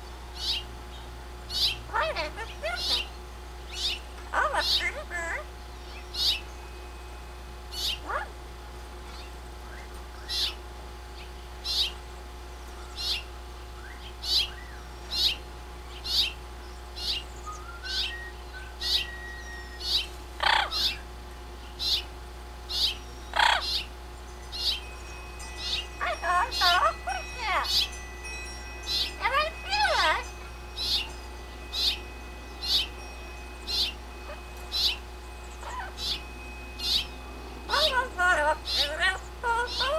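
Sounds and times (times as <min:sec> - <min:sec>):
lower longer bird calls: 0:00.3 - 0:06.9, 0:07.7 - 0:08.4, 0:09.1 - 0:10.6, 0:11.2 - 0:12.0, 0:12.6 - 0:28.1, 0:28.8 - 0:39.9
bird chirping: 0:00.3 - 0:07.0, 0:07.7 - 0:08.3, 0:09.1 - 0:10.6, 0:11.2 - 0:39.9
faint rising whistled notes: 0:17.4 - 0:19.9.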